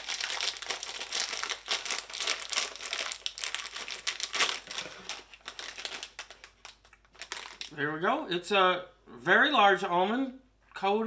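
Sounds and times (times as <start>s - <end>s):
plastic snack bag crinkling: 0.0s - 7.8s.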